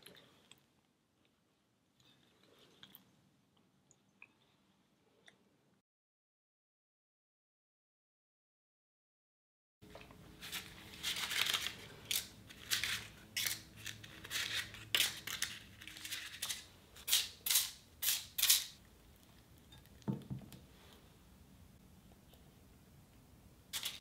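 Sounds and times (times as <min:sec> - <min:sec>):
paper liners crinkling: 0:10.4 - 0:18.8, 0:23.7 - 0:24.0
dull knock: 0:20.1 - 0:20.6.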